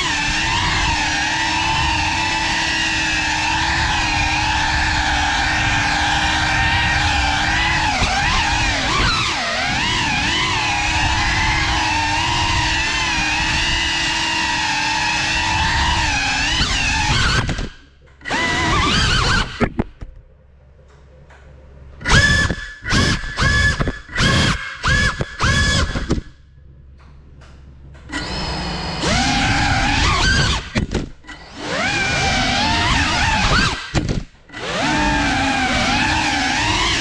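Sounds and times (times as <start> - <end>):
drone motors whining: 0.0 - 26.4, 27.4 - 37.0.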